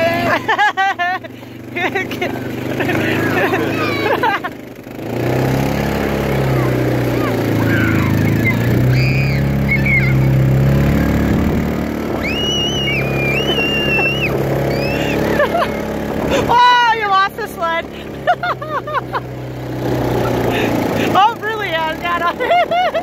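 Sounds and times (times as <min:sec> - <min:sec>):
atv engine running: 0:00.0 - 0:23.0
children squealing: 0:02.9 - 0:04.4, 0:06.2 - 0:11.3, 0:12.0 - 0:17.0.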